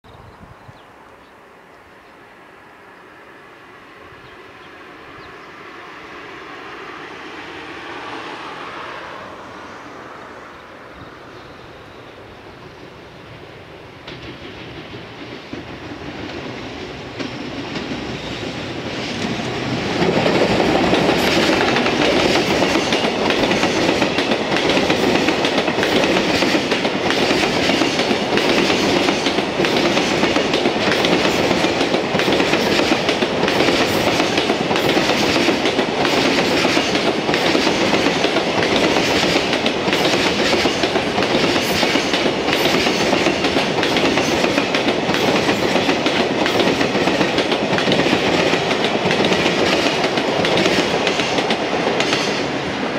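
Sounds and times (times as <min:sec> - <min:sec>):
electric locomotive passing: 0:00.8 - 0:52.9
train wheels clattering over rail joints: 0:14.0 - 0:52.5.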